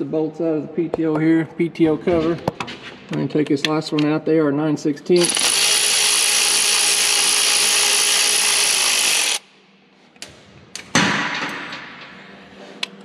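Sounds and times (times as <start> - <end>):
electric ratchet running: 5.2 - 9.5.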